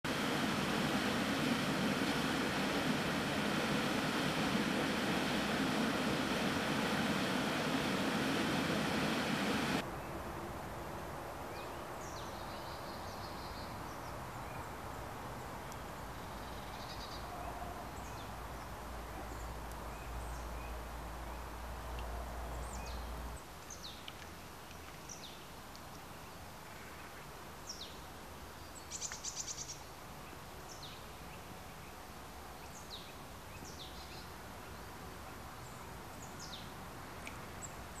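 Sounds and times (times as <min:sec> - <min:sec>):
stream flowing: 0:00.1 - 0:09.8.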